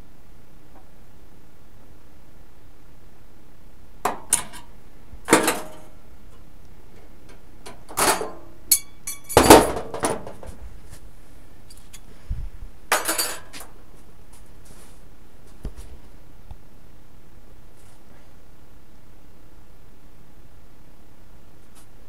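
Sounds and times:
metal objects clinking and knocking: 5.3s - 5.9s, 7.7s - 10.5s, 12.9s - 13.6s.

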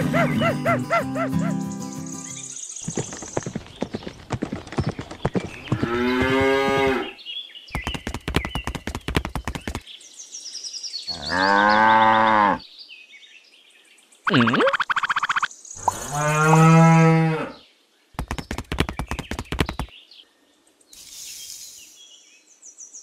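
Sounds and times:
quick clicking taps: 7.8s - 9.8s, 18.2s - 19.9s
cow mooing: 15.9s - 17.6s.

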